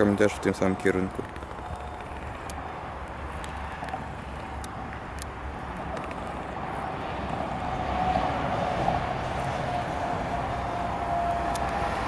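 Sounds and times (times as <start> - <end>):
electric train approaching: 5.9 - 12.0
train whine: 6.0 - 12.0.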